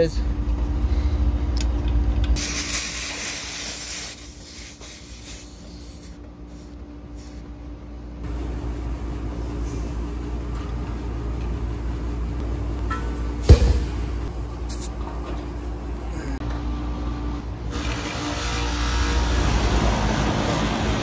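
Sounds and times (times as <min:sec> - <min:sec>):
air conditioner units humming: 0:00.0 - 0:21.0
refrigerant hissing: 0:02.4 - 0:07.5.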